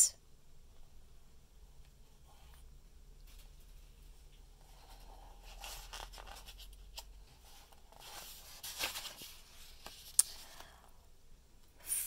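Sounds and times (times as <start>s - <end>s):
paper page rustling: 3.3s - 10.6s.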